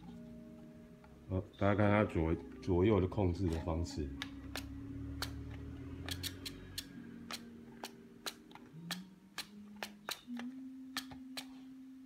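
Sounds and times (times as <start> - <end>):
servo clicking: 4.2 - 11.5.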